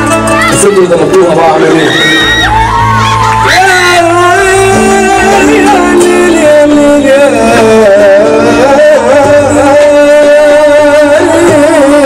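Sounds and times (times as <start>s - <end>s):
electronic keyboard melody: 2.5s - 12.0s.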